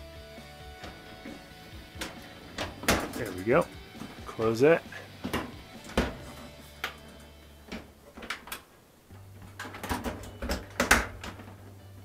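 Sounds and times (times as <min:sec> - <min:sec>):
dryer panels clicking and knocking: 0:00.7 - 0:03.4, 0:05.2 - 0:11.8.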